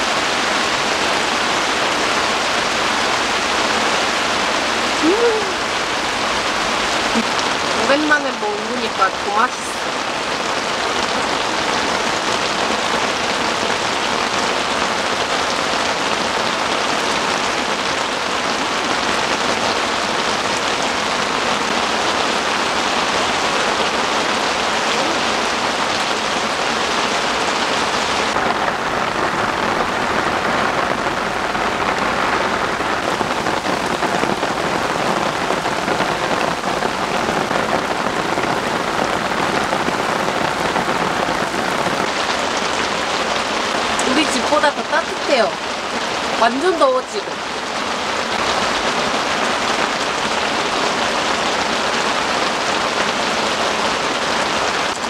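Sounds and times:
heavy rain on a tent: 0.0s - 55.0s.

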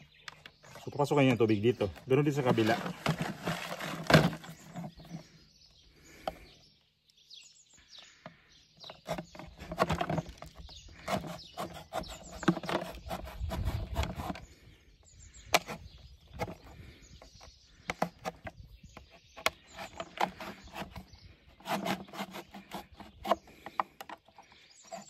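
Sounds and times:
knife scraping plastic container: 0.4s - 5.3s, 8.9s - 14.5s, 17.8s - 25.0s.

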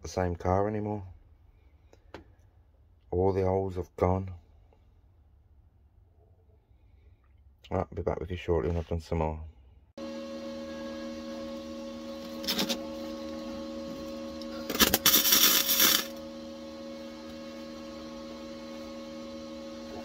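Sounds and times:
steady electrical hum: 11.8s - 19.2s
welder arc crackling: 14.4s - 16.2s.

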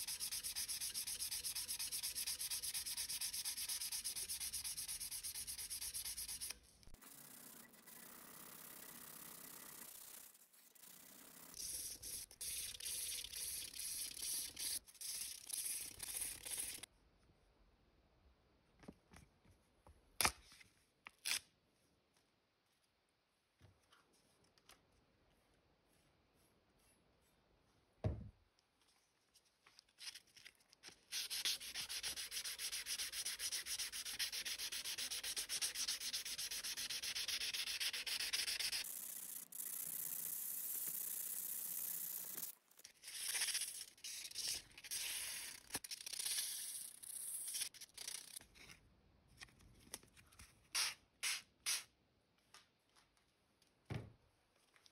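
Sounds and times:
sandpaper rasping on steel blade: 0.0s - 6.6s, 31.1s - 48.4s.

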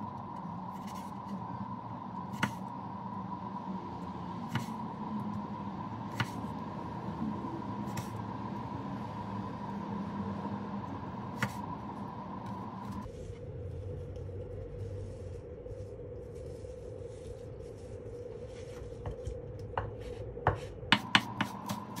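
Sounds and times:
steady background hum: 0.0s - 22.0s
knife chopping on wooden board: 6.1s - 6.4s, 20.5s - 22.0s.

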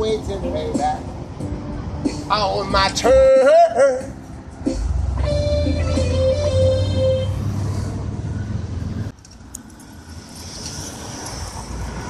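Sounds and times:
street traffic: 0.0s - 12.0s
electronic keyboard notes: 0.4s - 7.6s.

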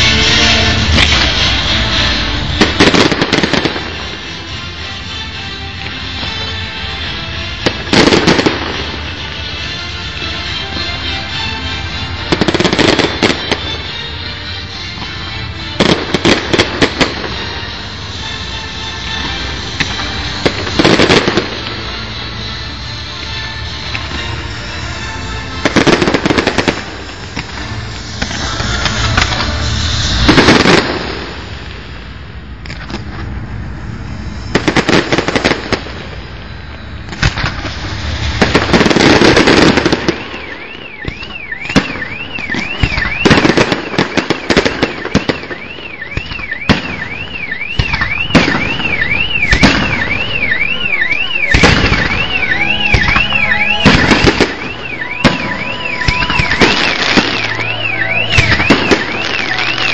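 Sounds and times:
fireworks bangs and crackling: 0.0s - 59.9s
warbling alarm tone: 24.3s - 31.9s, 44.9s - 59.9s.

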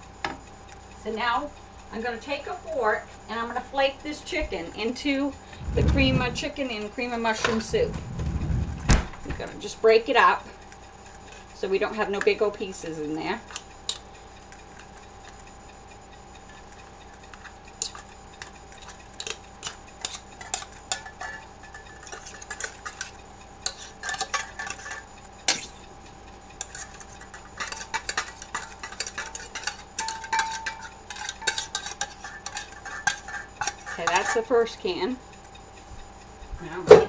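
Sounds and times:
fork scraping a tin can: 26.6s - 34.5s.

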